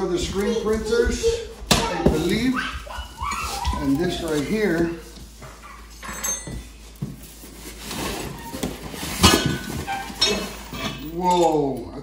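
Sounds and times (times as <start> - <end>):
cardboard and styrofoam scraping: 3.5 - 5.4, 6.9 - 10.8.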